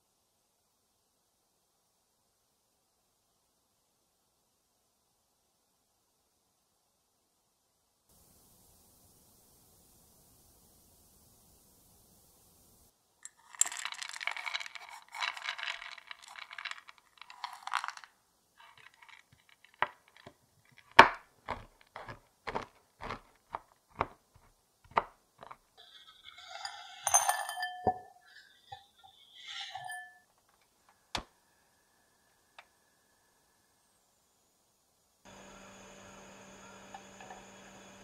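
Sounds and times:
chocolate scraped into glass bowl: 13.2s - 30.3s
knife chopping chocolate on wood: 20.9s - 25.6s.

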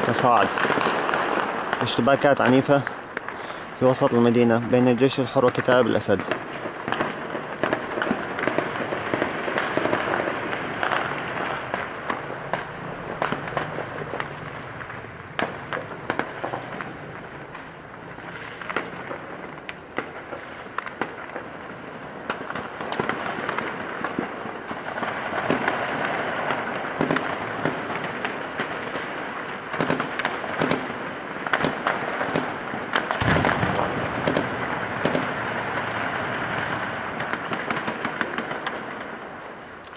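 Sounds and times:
gunshots: 0.0s - 39.2s
deep heavy blast: 33.2s - 37.5s.

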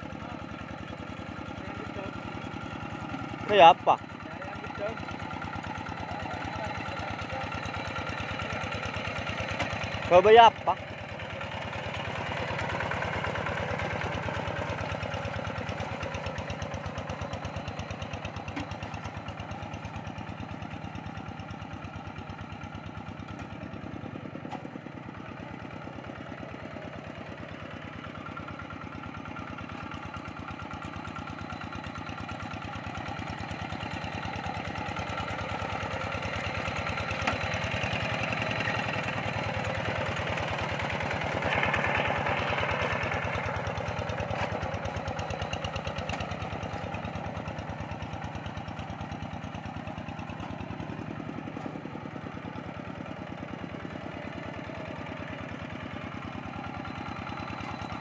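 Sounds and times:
diesel tractor engine running: 0.0s - 58.0s.

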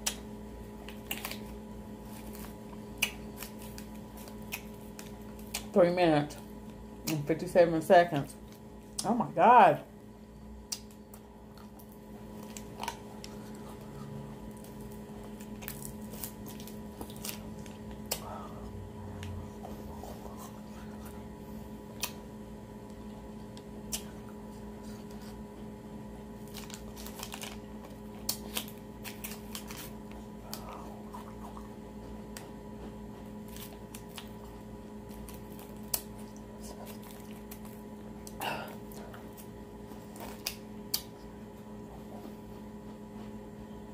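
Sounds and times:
low electrical hum: 0.0s - 43.9s
plastic sleeve crinkling: 26.4s - 30.1s.

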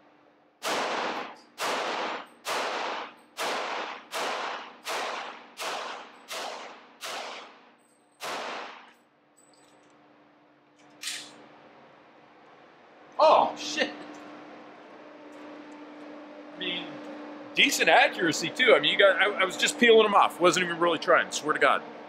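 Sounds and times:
pistol shots echoing indoors: 0.6s - 9.1s.

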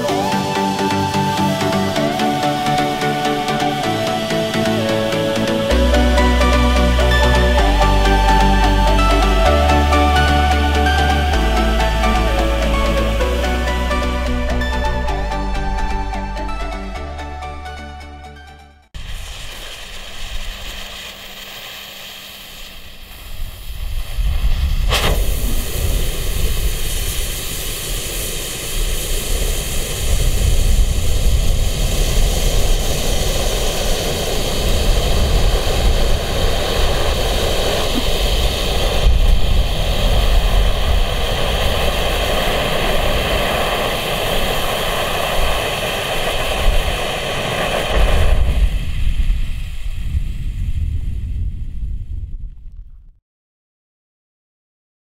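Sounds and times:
low rumble: 3.1s - 53.2s
flare burning with hiss: 19.0s - 51.2s
sharp pop: 24.8s - 25.8s.

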